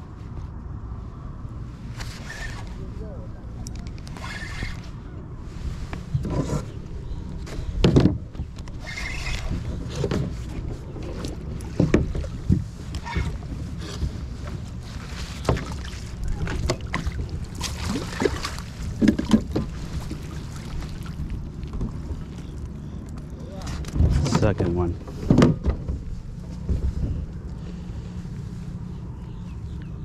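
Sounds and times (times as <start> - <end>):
wind rumble on microphone: 0.0 - 30.0
gear bumping against boat: 6.0 - 27.4
water splashing: 14.9 - 23.9.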